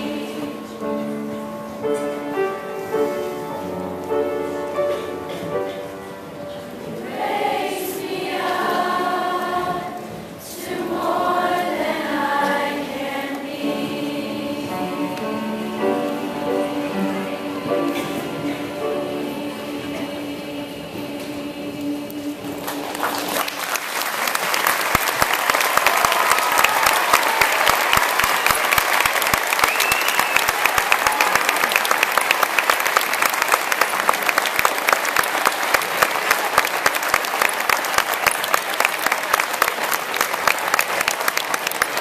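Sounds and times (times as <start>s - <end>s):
choir singing held chord: 0.0s - 1.3s, 6.8s - 23.6s
audience applause: 22.6s - 42.0s.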